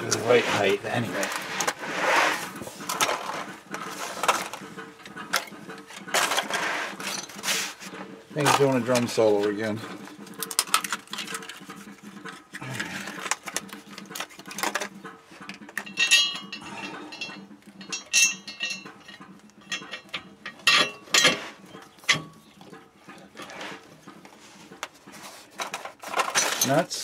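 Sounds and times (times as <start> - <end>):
steel bolts clinking on metal: 15.8 - 21.5.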